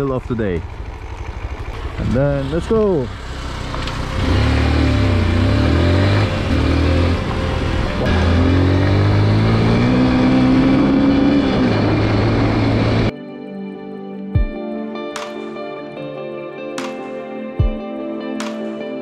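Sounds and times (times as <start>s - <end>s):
vehicle engine accelerating: 0.0s - 13.1s.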